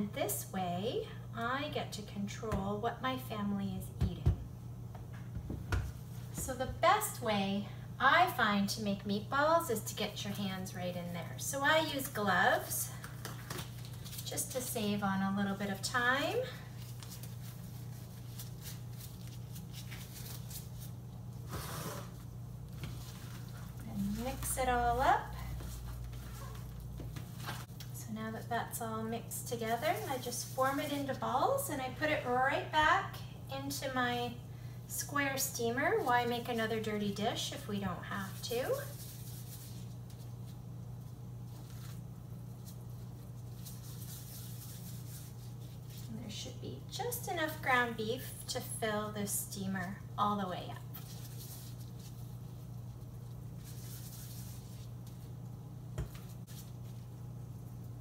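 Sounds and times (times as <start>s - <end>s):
steady low hum: 0.0s - 58.0s
disposable gloves crinkling: 11.9s - 28.0s, 29.5s - 31.7s, 38.2s - 46.2s, 50.8s - 58.0s.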